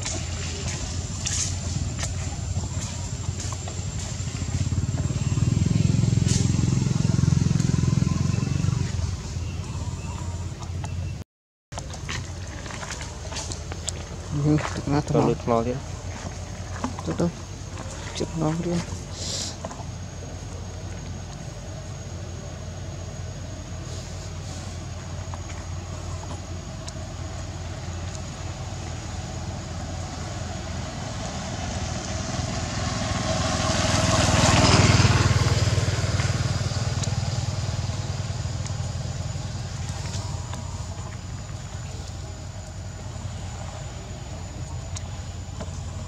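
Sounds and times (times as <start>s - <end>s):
motor vehicle passing by: 0.0s - 11.2s, 27.7s - 42.1s
steady low hum: 0.0s - 11.2s, 11.8s - 46.0s.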